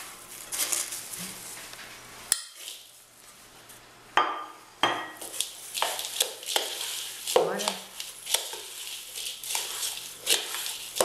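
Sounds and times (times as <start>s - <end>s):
biscuit crumbs crunching and rustling: 0.0s - 1.8s, 5.2s - 11.0s
rush of crumbs: 5.3s - 11.0s.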